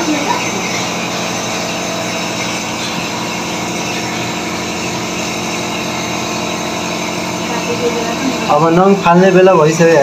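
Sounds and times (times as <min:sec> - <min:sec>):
steady machine hum: 0:00.0 - 0:10.0.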